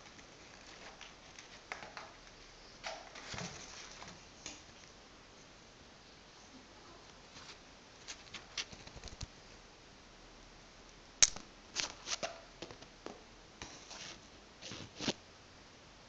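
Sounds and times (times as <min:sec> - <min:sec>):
sharp click: 0:11.2 - 0:11.9.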